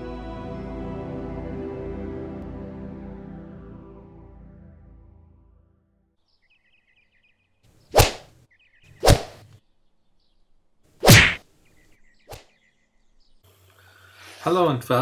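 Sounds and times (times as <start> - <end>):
whoosh swishes: 7.9 - 8.3, 9.0 - 9.4, 11.0 - 11.4.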